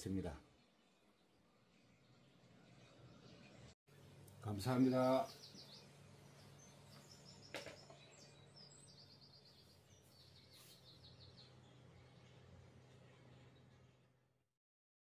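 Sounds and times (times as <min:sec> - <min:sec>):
bird trills and chirps: 0:04.9 - 0:13.8.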